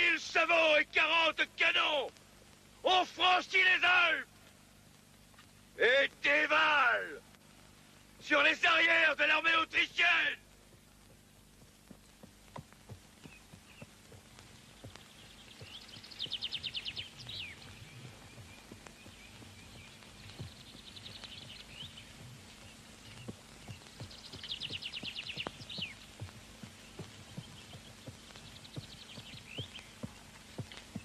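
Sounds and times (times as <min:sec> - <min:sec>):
hoof steps in snow: 0:10.5 - 0:31.0.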